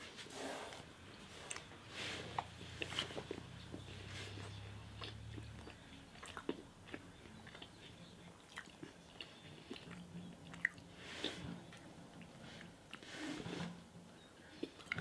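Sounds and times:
person chewing: 1.3s - 1.7s, 2.3s - 13.2s, 14.5s - 15.0s.

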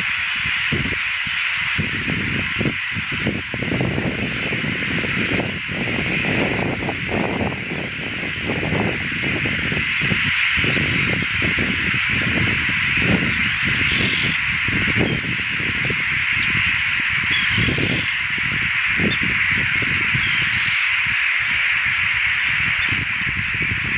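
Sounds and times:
gull colony calling: 0.0s - 23.9s
wind buffeting microphone: 0.0s - 23.9s
single sharp gull calls: 13.5s - 14.4s, 17.3s - 18.2s, 20.2s - 20.9s.

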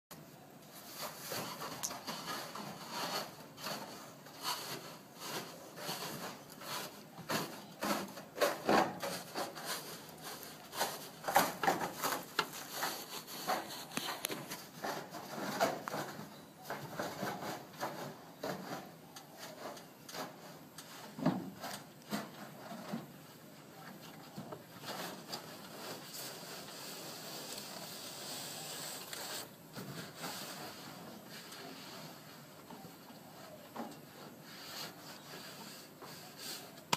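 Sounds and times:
gloved hands scuffing foam in gutter: 0.8s - 16.2s.

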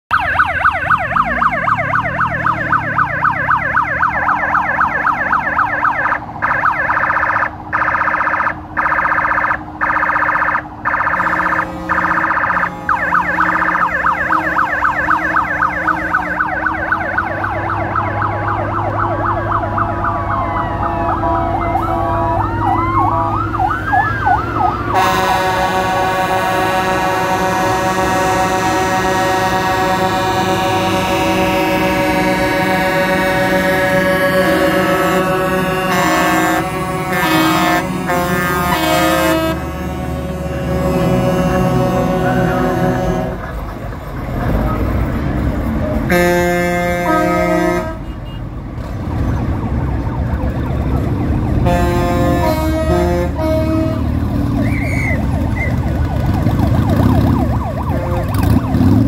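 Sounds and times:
yelping siren: 0.1s - 44.9s, 49.5s - 59.0s
wailing sirens: 0.1s - 59.0s
truck air horn: 10.9s - 16.6s, 20.9s - 23.4s, 24.9s - 43.7s, 46.0s - 48.5s, 51.6s - 55.3s, 57.8s - 59.0s.

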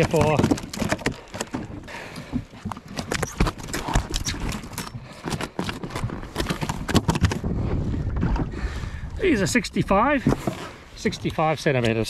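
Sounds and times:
fish thumping on plastic deck: 0.0s - 1.8s.

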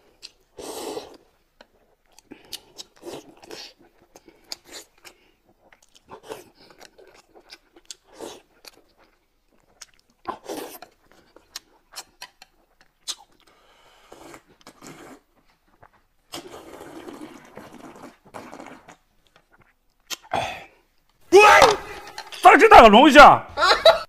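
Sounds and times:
slurping broth: 0.2s - 9.0s, 9.6s - 20.8s
chewing and lip smacks: 1.1s - 13.6s, 14.3s - 20.3s.

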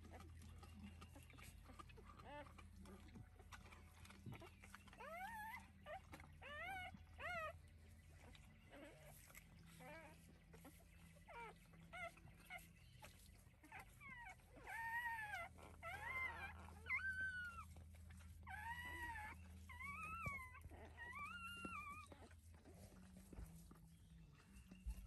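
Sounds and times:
dog licking: 0.0s - 6.4s
puppy crying: 1.1s - 7.6s, 8.2s - 23.0s.

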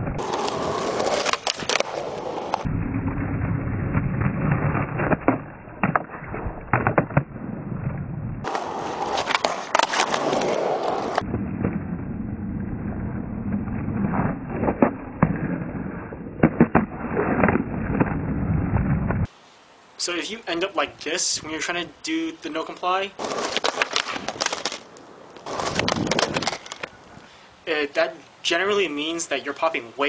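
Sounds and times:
skateboard wooden clacks: 0.0s - 2.7s, 8.4s - 11.2s, 23.2s - 27.0s
skateboard wheels rolling on asphalt: 0.0s - 19.4s, 20.2s - 30.0s.

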